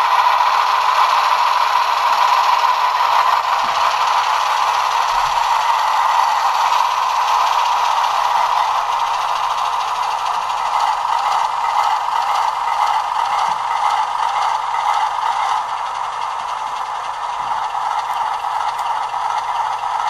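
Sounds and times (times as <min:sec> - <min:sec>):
model train diesel engine sound: 0:00.0 - 0:20.0
model train rattling on track: 0:00.0 - 0:20.0.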